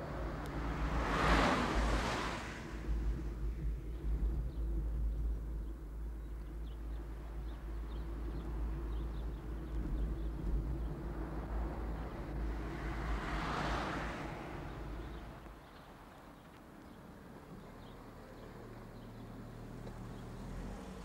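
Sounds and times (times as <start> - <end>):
car engine: 0.0 - 6.3
road rumble: 0.0 - 21.0.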